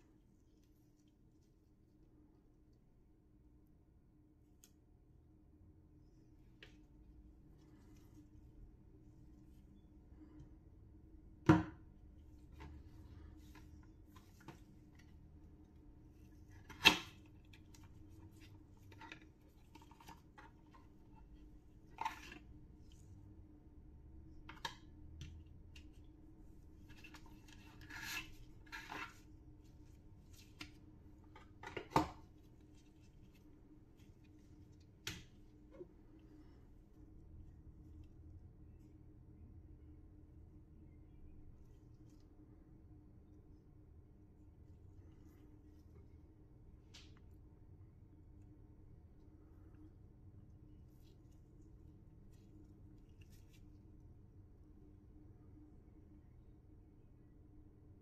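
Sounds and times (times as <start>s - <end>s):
faint steady hum: 0.0s - 58.0s
rustling card and paper: 26.6s - 35.6s, 50.8s - 54.0s.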